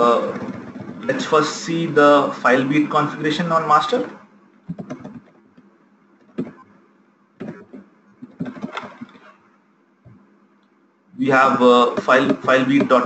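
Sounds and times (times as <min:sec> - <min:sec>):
computer keyboard typing: 0:04.7 - 0:05.4, 0:06.2 - 0:06.6, 0:07.4 - 0:09.3, 0:11.7 - 0:13.0.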